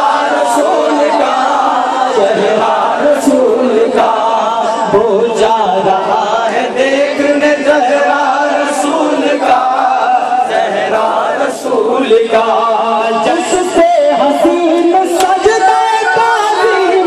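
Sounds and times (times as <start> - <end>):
men chanting devotional song: 0.0 - 17.0.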